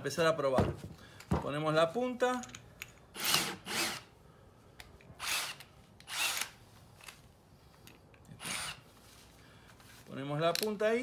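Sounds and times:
cordless drill running: 3.2s - 4.1s, 5.2s - 6.6s, 8.4s - 8.8s.

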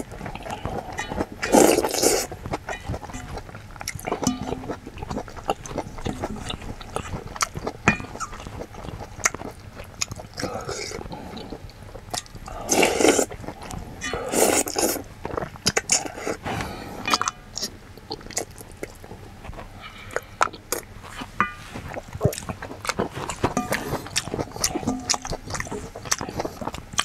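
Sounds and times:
person slurping soup: 0.0s - 2.3s, 10.4s - 11.7s, 12.5s - 15.1s
person chewing: 0.0s - 27.0s.

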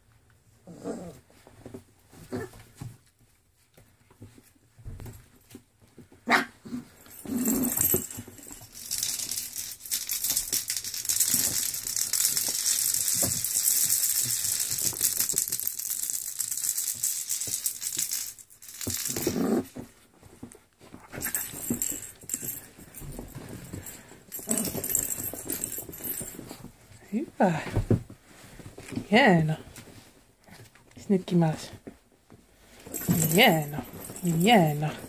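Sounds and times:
puppy growls and yaps: 0.6s - 1.2s, 2.2s - 2.6s
puppies scuffling on blanket: 1.2s - 6.2s, 19.2s - 31.0s.

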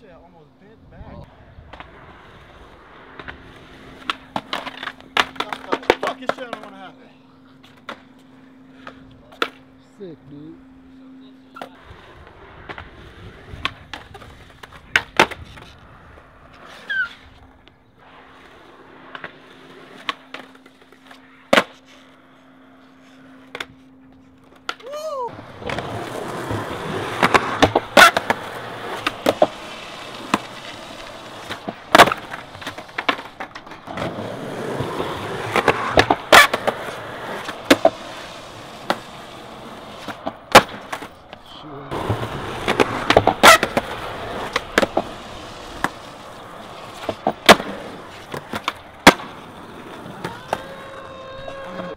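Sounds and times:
skateboard wheels rolling on concrete: 0.0s - 51.9s
skateboard clacking: 2.9s - 7.0s, 11.5s - 15.7s, 18.9s - 21.9s, 24.4s - 51.9s.

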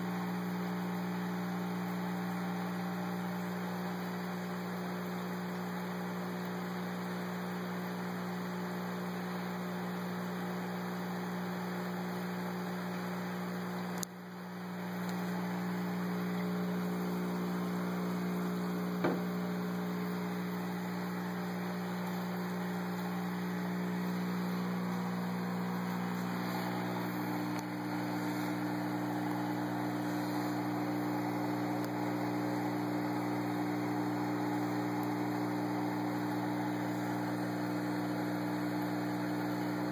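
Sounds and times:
electrical hum: 0.0s - 39.9s
click: 13.9s - 14.2s, 27.5s - 27.7s.

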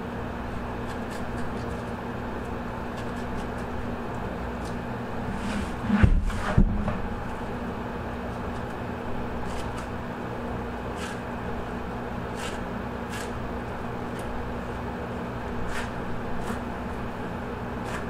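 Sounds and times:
low room hum: 0.0s - 18.0s
dull thumps: 5.4s - 7.2s.

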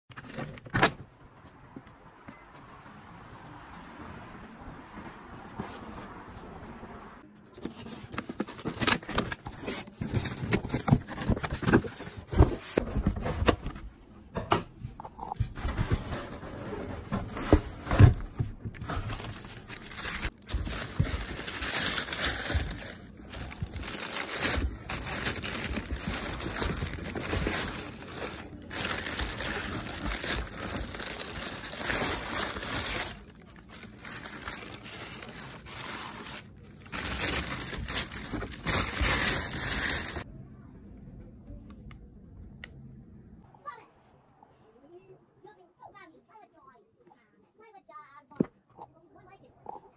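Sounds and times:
tissue paper crinkling: 15.5s - 40.2s.

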